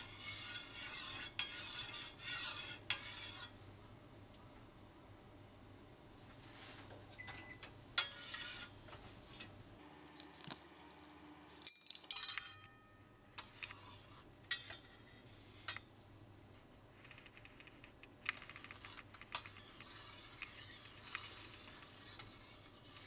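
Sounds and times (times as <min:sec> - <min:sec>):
metal spoon scraping a saucepan: 0:00.0 - 0:03.6, 0:08.0 - 0:08.8, 0:11.9 - 0:15.8, 0:18.2 - 0:23.0.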